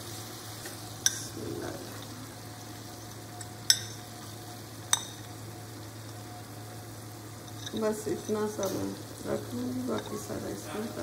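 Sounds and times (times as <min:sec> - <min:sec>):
utensil clinking on plate and wok: 0:01.0 - 0:01.3, 0:03.4 - 0:04.1, 0:04.9 - 0:05.3, 0:07.4 - 0:08.9.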